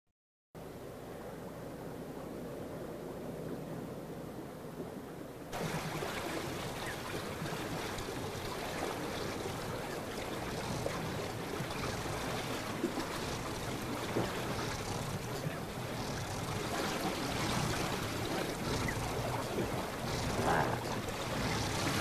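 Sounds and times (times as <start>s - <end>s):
rushing water: 5.5s - 22.0s.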